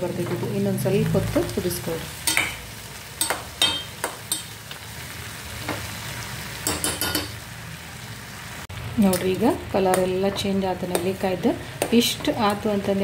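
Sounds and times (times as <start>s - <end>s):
spoon clinking against pot: 3.2s - 4.6s, 6.6s - 7.3s.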